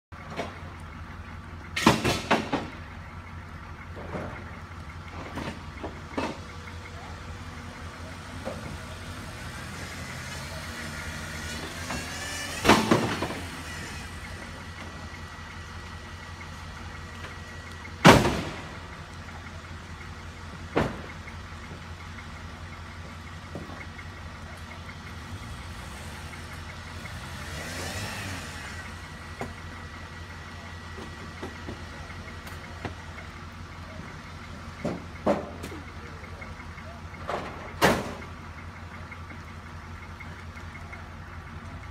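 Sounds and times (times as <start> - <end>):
off-road vehicle engine revving: 5.1 - 21.8, 22.7 - 38.4.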